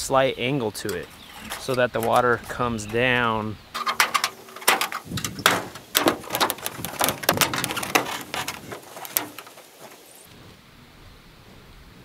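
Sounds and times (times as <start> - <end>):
rain gutter knocking on metal roof: 3.8 - 10.0.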